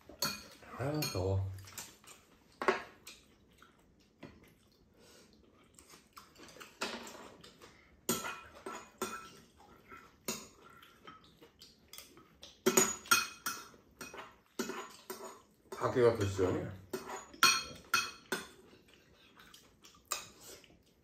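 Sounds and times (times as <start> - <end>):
utensils clinking on ceramic bowls: 0.1 - 1.9, 8.1 - 9.4, 12.0 - 18.7
person chewing: 1.6 - 12.7, 17.3 - 21.0.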